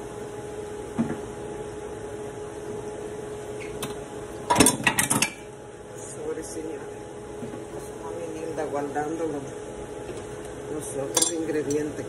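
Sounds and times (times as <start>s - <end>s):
kitchen utensils clattering: 4.5s - 5.4s, 11.1s - 11.8s.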